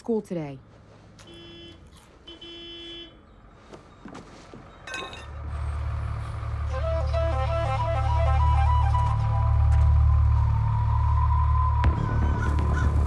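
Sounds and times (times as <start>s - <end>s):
bus engine rumbling: 0.0s - 13.0s
bus horn tooting: 1.2s - 3.2s.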